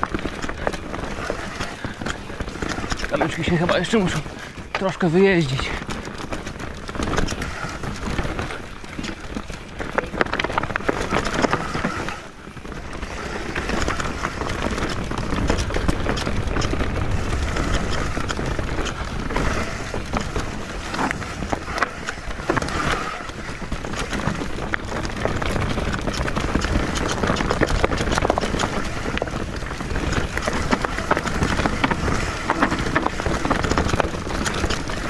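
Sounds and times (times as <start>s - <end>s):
bike rattling over bumps: 0.0s - 35.0s
bike tyres crunching on dirt: 0.0s - 35.0s
wind on microphone: 10.7s - 35.0s.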